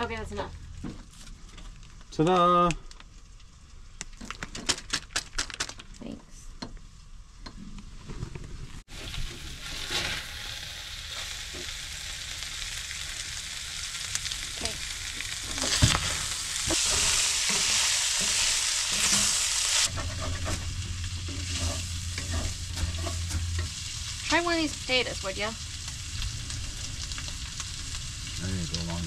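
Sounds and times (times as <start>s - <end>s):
food sizzling in a skillet: 8.8s - 29.0s
wooden spatula scraping skillet: 16.7s - 24.4s
low steady hum: 19.9s - 29.0s.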